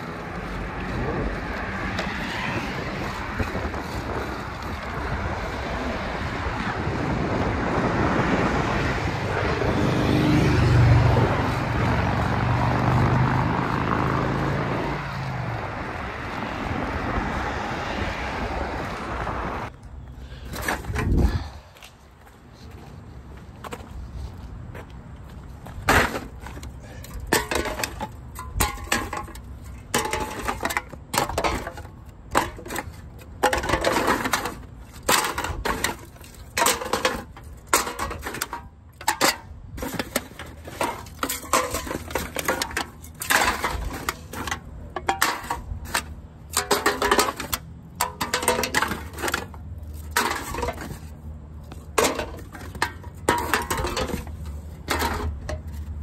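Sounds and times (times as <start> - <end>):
empty cans clattering in a box: 27.3 - 51.1, 52.0 - 55.9.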